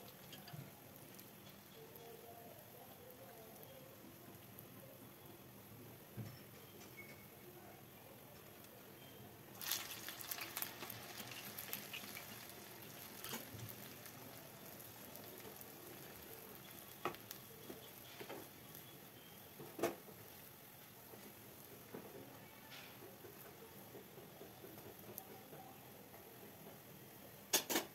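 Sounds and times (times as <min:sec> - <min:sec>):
food sizzling in hot oil: 0:00.0 - 0:06.6, 0:09.4 - 0:23.7.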